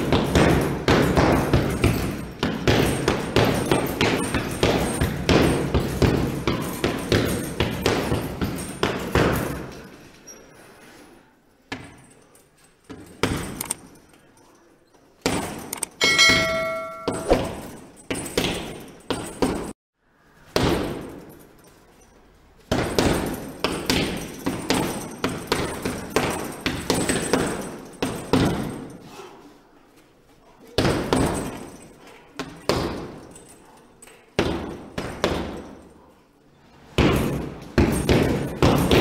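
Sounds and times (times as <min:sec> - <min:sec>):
ringing glassy crash: 0:16.0 - 0:17.8.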